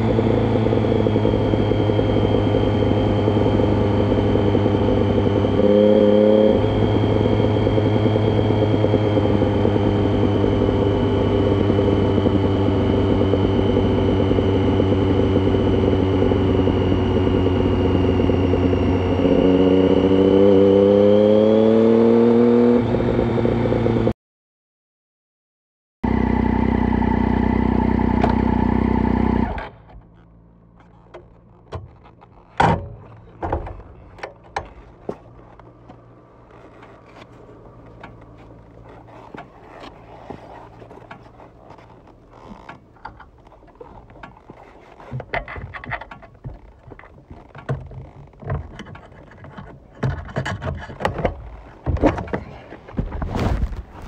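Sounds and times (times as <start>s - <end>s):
motorcycle engine revving: 0.0s - 24.1s.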